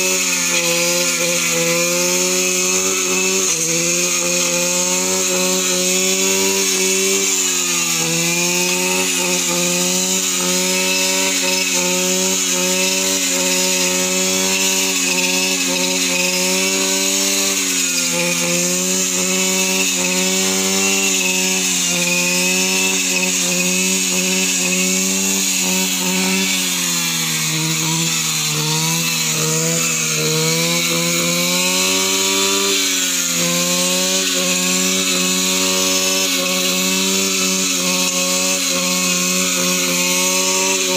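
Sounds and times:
brush cutter engine cutting weeds: 0:00.0 - 0:40.9.

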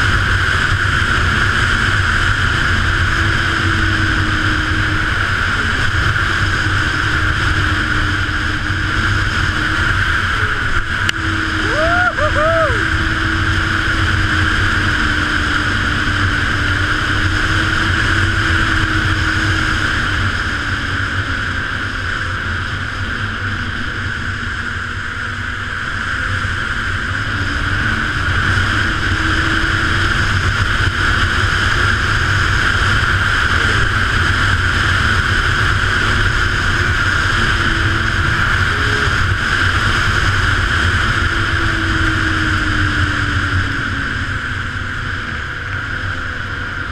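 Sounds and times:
snowmobile engine running: 0:00.0 - 0:46.9.

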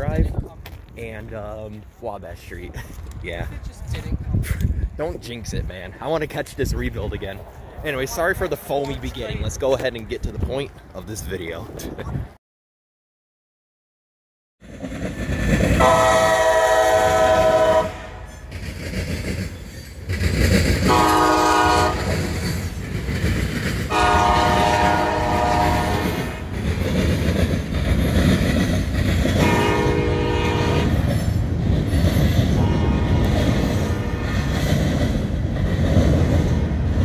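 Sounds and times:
train rumble and wheel clatter: 0:00.0 - 0:12.3, 0:14.6 - 0:37.0
locomotive air horn blasts: 0:15.8 - 0:18.3, 0:20.9 - 0:22.1, 0:23.9 - 0:26.5, 0:29.4 - 0:31.0, 0:32.6 - 0:34.4.

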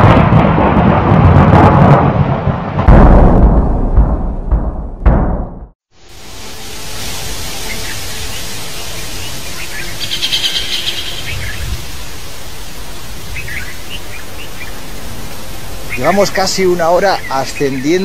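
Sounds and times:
steady outdoor hiss: 0:05.9 - 0:18.0
bird chirps: 0:07.6 - 0:11.9.

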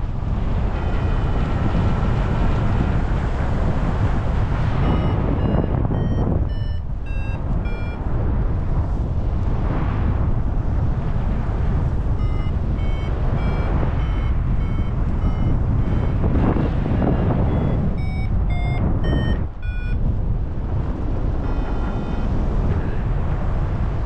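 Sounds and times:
wind rush on microphone: 0:00.0 - 0:24.0
variometer short beeps: 0:04.7 - 0:08.1, 0:12.1 - 0:20.0.

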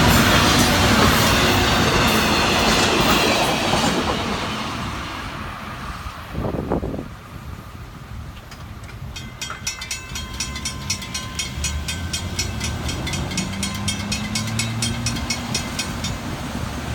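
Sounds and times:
vehicles driving over crossing: 0:08.5 - 0:16.9
railroad crossing bell ringing: 0:08.9 - 0:16.9.

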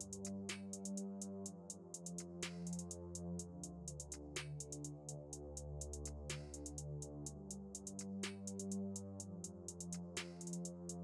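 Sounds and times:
electronic music with hi-hat beat: 0:00.0 - 0:11.0.

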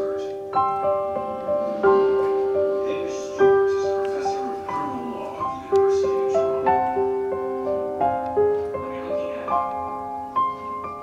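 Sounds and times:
slow keyboard melody: 0:00.0 - 0:11.0.

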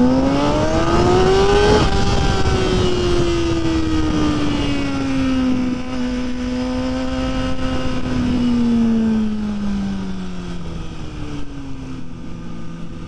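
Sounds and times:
motorcycle engine running: 0:00.0 - 0:13.0
wind and road noise: 0:00.0 - 0:13.0.

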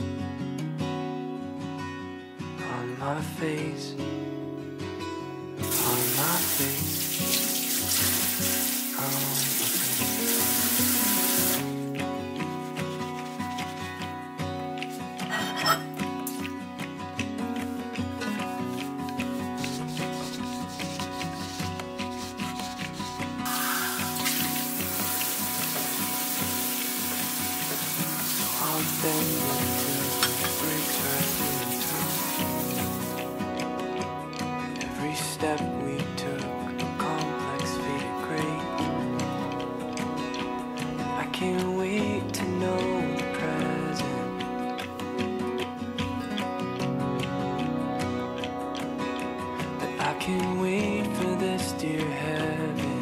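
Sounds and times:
soft background music: 0:00.0 - 0:53.0
tap water splashing in sink: 0:05.6 - 0:11.7, 0:23.5 - 0:33.3.

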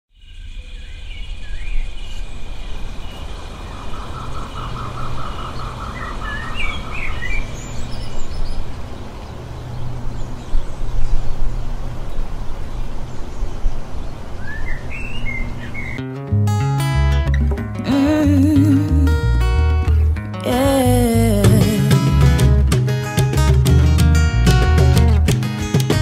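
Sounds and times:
birds chirping and calling: 0:00.4 - 0:16.0.

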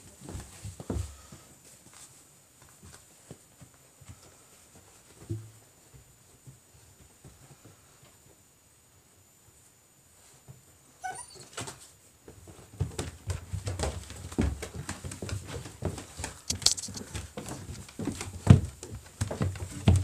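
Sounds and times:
puppy whining: 0:11.0 - 0:11.8
knocks and bumps against camera: 0:12.8 - 0:20.0.

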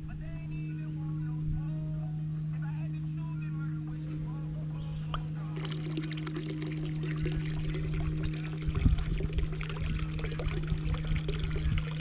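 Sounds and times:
steady low hum: 0:00.0 - 0:12.0
water pouring and splashing: 0:05.6 - 0:12.0.

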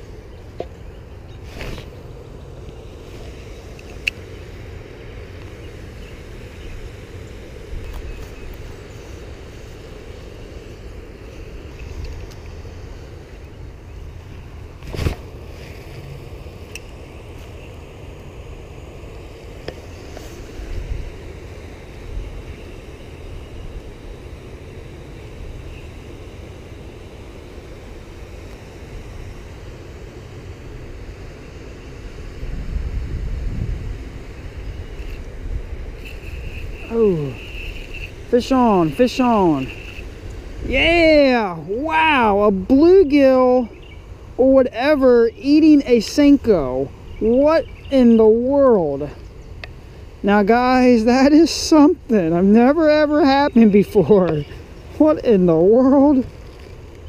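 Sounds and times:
wind on microphone: 0:32.0 - 0:42.8.

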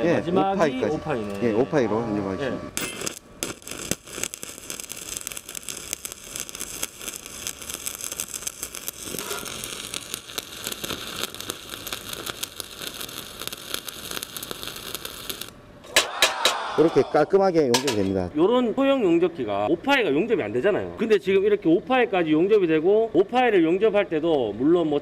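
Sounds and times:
welding arc crackling: 0:02.8 - 0:15.6.

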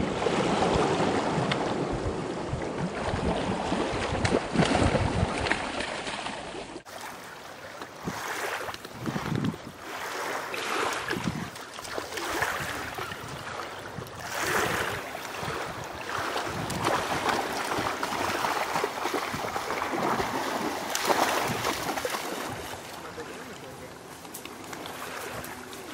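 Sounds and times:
dogs splashing through water: 0:00.1 - 0:25.9.

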